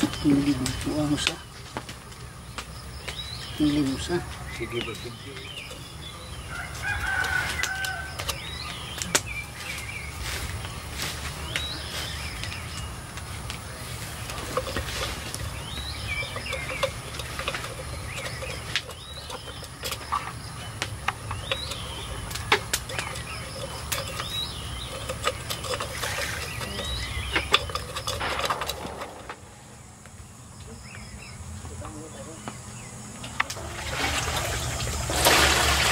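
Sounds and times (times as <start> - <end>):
birds calling: 0.0 - 35.9
clay pots clinking on stone: 3.0 - 9.3, 13.4 - 29.4.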